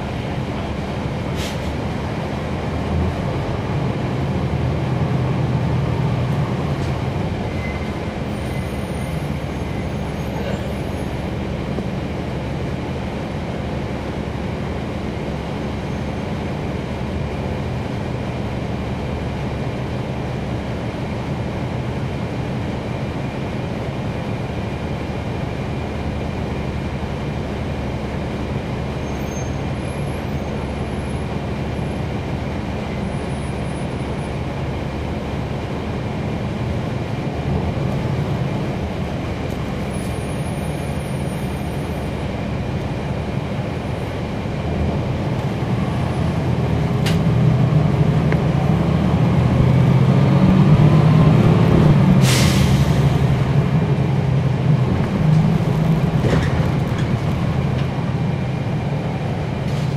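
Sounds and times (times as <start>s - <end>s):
bus diesel engine running: 0.0s - 59.9s
road noise: 0.0s - 59.9s
rising engine whine: 44.1s - 59.6s.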